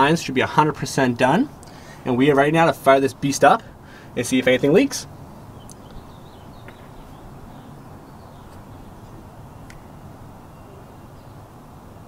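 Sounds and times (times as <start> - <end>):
steady low hum: 0.0 - 12.0
faint bird chirps: 5.5 - 12.0.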